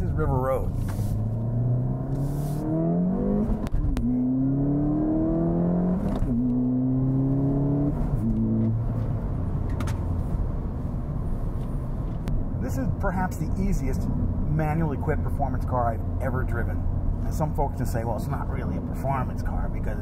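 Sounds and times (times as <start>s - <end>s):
car engine accelerating: 0.0s - 13.0s
road noise: 0.0s - 20.0s.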